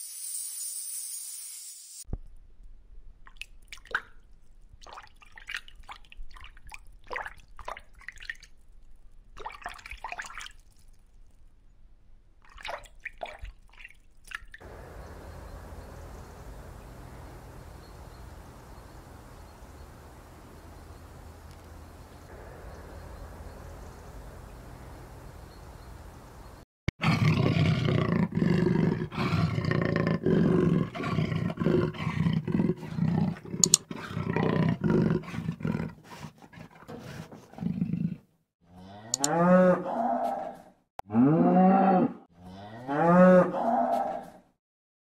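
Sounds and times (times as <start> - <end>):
faint steady hiss: 14.7 - 26.6
leopard growling and snarling: 27.0 - 38.3
cow mooing: 38.8 - 44.3.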